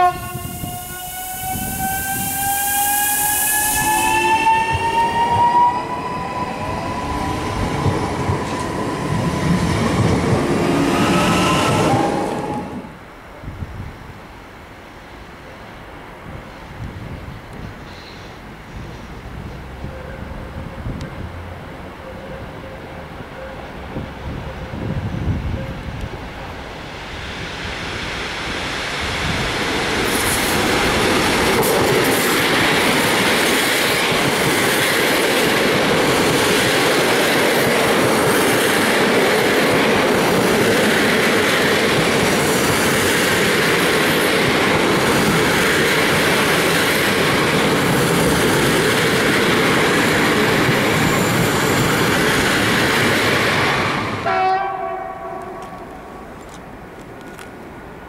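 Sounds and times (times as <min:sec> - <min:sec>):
train wheels rolling on rail: 0:00.0 - 0:14.4, 0:15.6 - 0:58.0.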